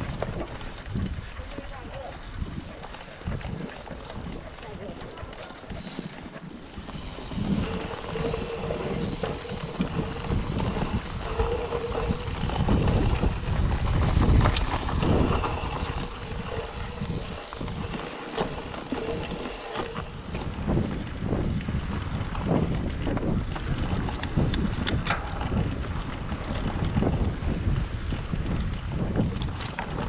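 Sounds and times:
bike tyres rumbling on dirt: 0.0 - 30.0
short high chirps: 9.9 - 11.8, 12.8 - 13.2.

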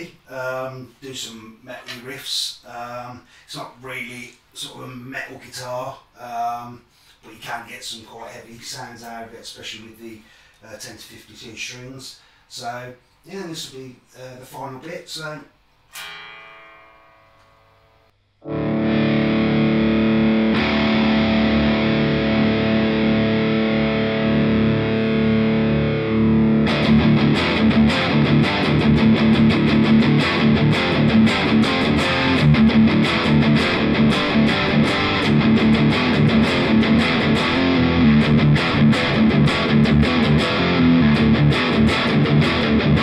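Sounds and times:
overdriven electric guitar: 15.9 - 43.0.

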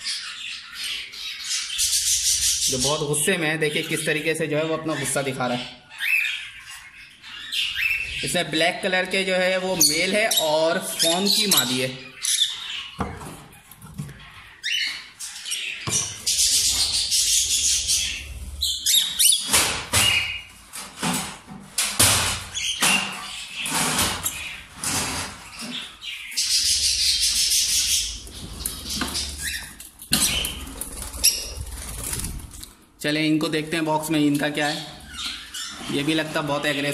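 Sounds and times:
parrots calling: 0.0 - 8.6, 9.2 - 20.6, 22.4 - 32.4, 34.5 - 36.9
wings flapping: 30.2 - 32.7.

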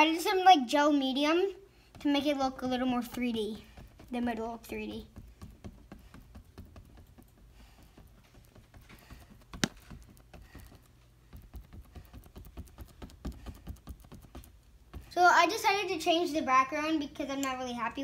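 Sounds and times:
paintbrush dabbing on canvas: 1.7 - 15.4.

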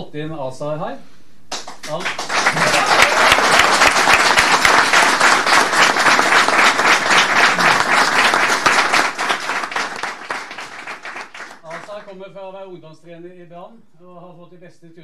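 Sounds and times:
audience applauding: 1.5 - 12.0.

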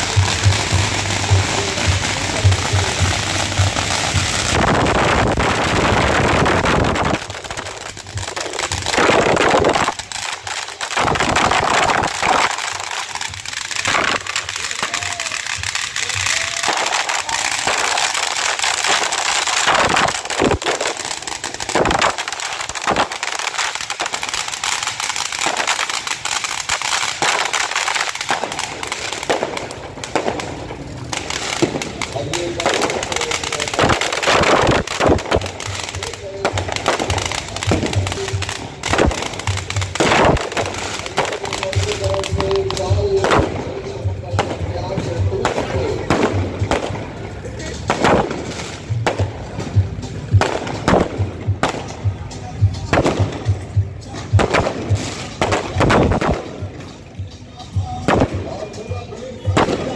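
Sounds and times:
crowd voices: 0.0 - 59.9
firecrackers popping and banging: 0.0 - 59.9.

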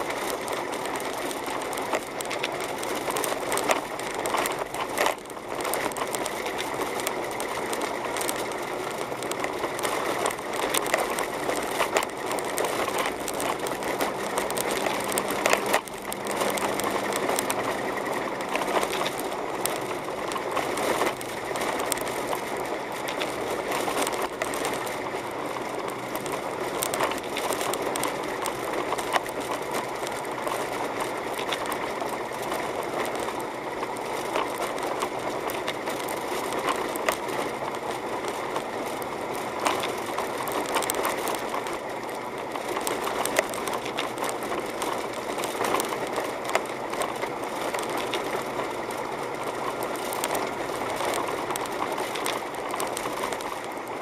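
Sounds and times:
small clicks and rattles: 0.0 - 54.0
tyre and engine noise: 0.0 - 54.0.

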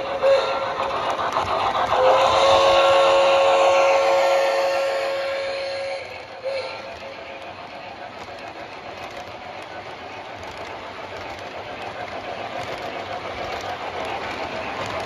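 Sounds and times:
model train cars rolling on track: 0.0 - 15.0
faint clicks: 6.1 - 15.0.

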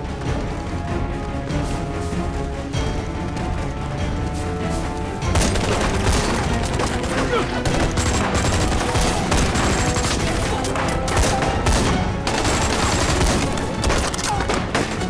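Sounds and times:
heavy gunfire: 5.3 - 15.0.

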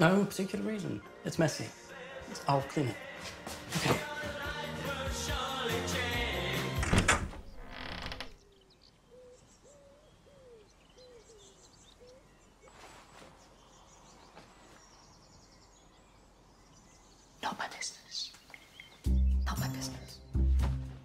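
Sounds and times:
music: 0.0 - 7.3, 19.0 - 21.0
door creaking: 6.7 - 8.4
short rustle: 12.6 - 14.9.

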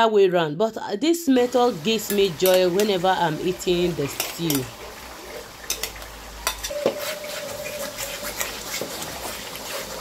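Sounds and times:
spatula stirring stew in pot: 4.0 - 10.0.

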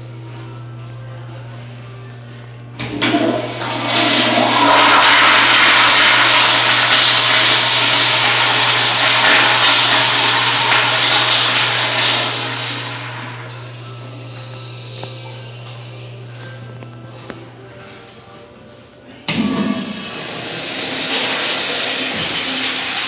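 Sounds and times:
toilet flushing water rush: 2.8 - 13.5, 19.3 - 23.0.

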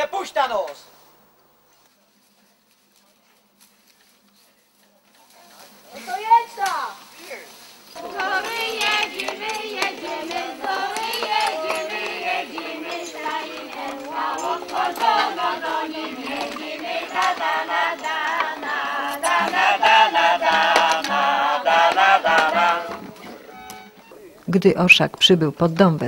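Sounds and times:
group singing folk song: 7.8 - 24.0.

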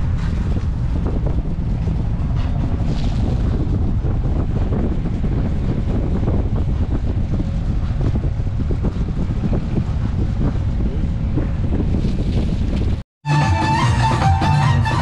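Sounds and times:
wind buffeting microphone: 0.0 - 13.0
music with violin: 13.2 - 15.0.

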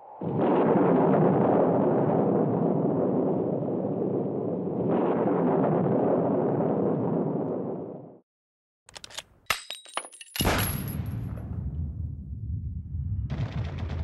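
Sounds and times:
cinematic rumbling: 11.1 - 14.0.

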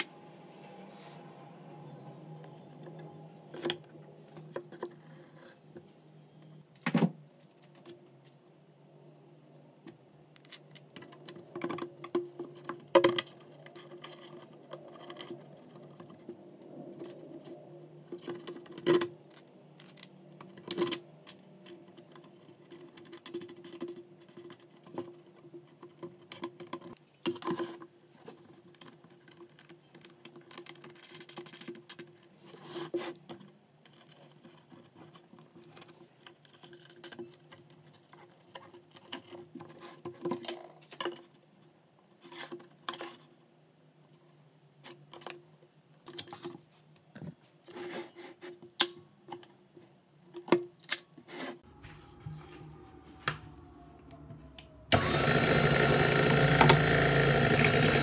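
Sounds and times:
faint steady hum: 51.6 - 58.0.

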